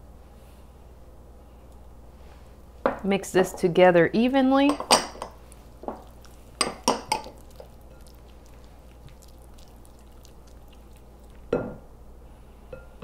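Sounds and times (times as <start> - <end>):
spatula squishing wet mixture: 4.9 - 11.5.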